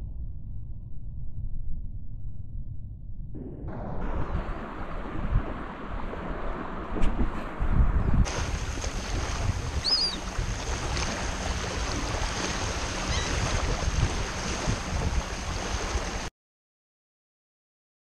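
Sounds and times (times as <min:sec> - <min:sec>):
wind buffeting microphone: 0:03.3 - 0:16.3
small waves washing ashore: 0:04.0 - 0:16.3.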